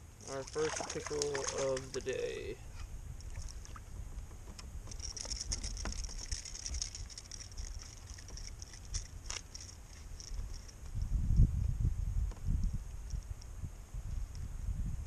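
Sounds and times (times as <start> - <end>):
low steady rumble: 0.0 - 15.0
light ticks and patter: 0.2 - 2.6, 3.2 - 11.7, 12.3 - 13.5.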